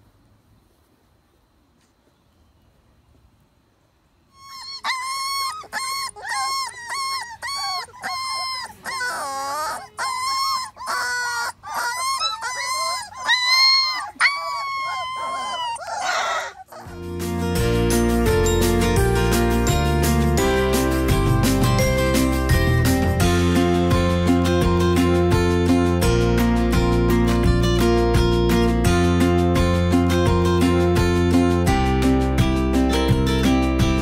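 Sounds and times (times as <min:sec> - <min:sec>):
puppy whining and crying: 0:04.3 - 0:17.0
music: 0:16.9 - 0:34.0.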